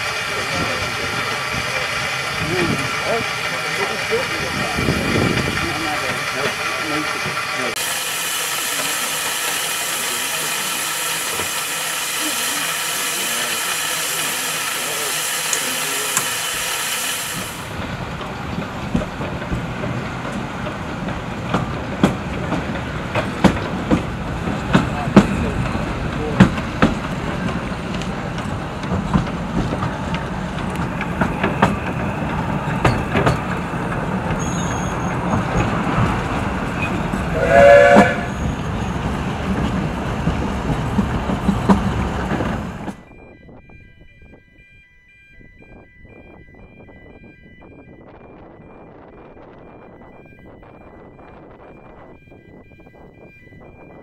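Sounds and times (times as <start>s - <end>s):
steam locomotive hissing: 0.0s - 18.4s, 21.3s - 43.0s
clanks and clicks on track: 0.0s - 44.4s
steam engine rumble: 0.0s - 44.7s.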